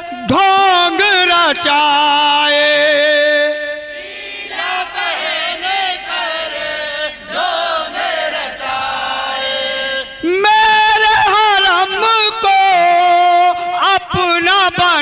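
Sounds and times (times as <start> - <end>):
men chanting in chorus over pa: 0.0 - 15.0.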